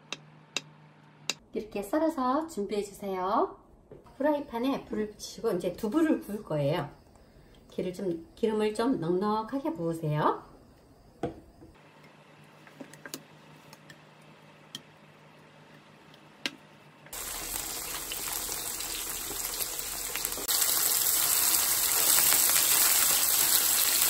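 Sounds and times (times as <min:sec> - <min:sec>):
tofu sizzling in hot oil: 0:17.1 - 0:24.0.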